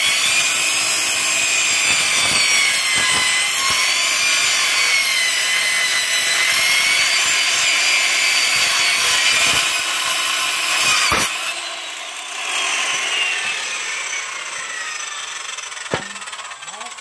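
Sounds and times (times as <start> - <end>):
circular saw cutting wood: 0.0 - 17.0
saw blade winding down: 0.0 - 17.0
sharp knock: 15.9 - 16.2.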